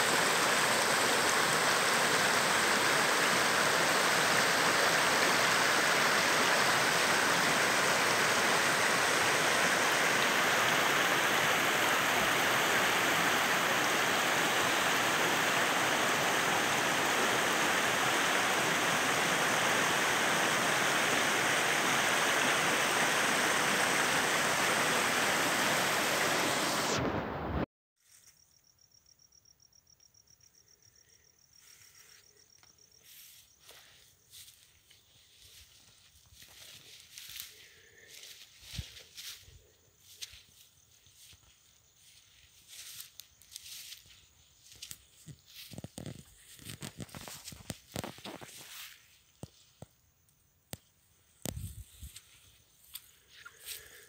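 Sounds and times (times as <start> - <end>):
stream rushing over rocks: 0.0 - 27.6
faint high insect trill: 28.0 - 54.0.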